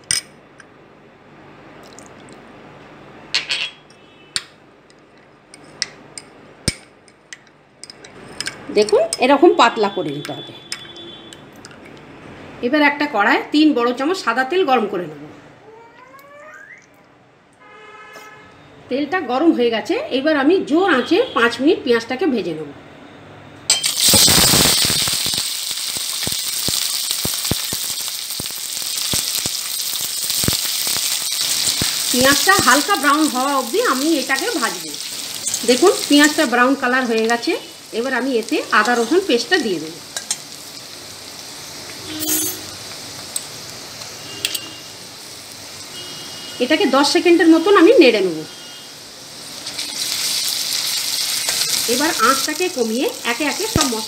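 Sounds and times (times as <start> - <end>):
onions sizzling in hot oil: 23.7 - 54.0
crackling pops: 23.9 - 36.5
spoon clinking on glass: 42.1 - 42.8.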